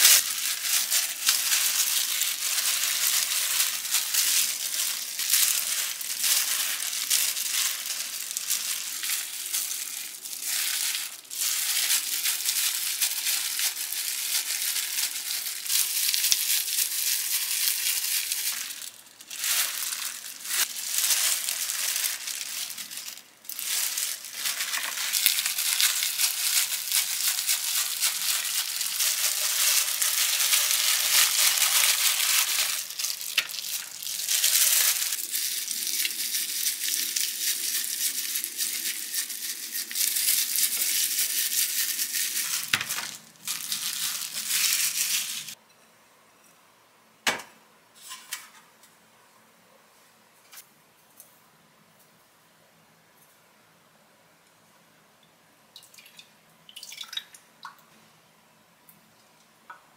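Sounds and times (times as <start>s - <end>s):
plastic gloves crinkling: 0.0s - 45.6s.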